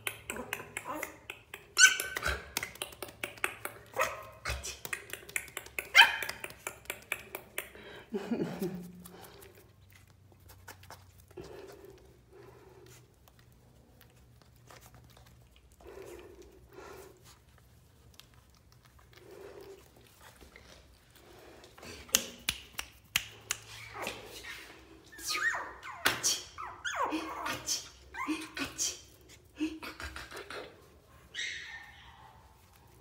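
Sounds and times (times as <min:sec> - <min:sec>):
puppy yipping: 0:00.4 - 0:02.6, 0:05.8 - 0:06.7, 0:23.8 - 0:27.7, 0:31.3 - 0:32.7.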